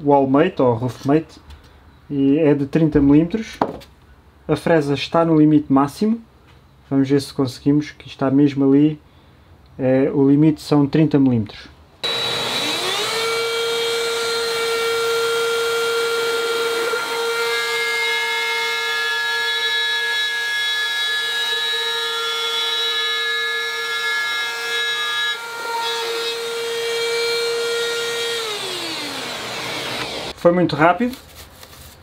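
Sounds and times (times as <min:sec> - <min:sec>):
cordless drywall cutter whining: 0:12.0 - 0:20.1, 0:23.7 - 0:30.4.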